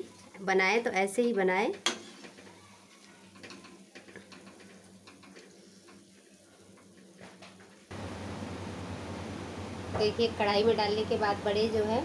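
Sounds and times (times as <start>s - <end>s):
food crackling in frying oil: 0.0s - 12.0s
low steady hum: 7.9s - 12.0s.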